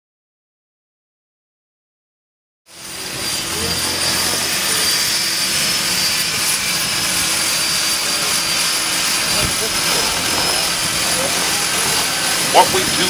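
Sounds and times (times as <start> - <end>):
propeller rush: 2.7 - 13.0
turboprop engines whining: 2.7 - 13.0.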